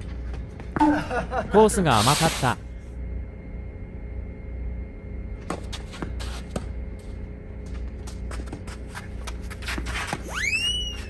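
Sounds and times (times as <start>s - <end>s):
steady low hum: 0.0s - 11.0s
shoes scuffing on tennis court: 5.4s - 11.0s.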